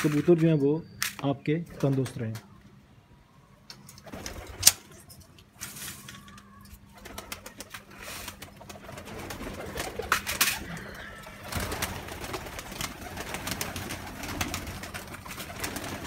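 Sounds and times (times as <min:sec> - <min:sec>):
pigeons cooing: 0:06.3 - 0:16.0
wing flaps: 0:06.9 - 0:16.0.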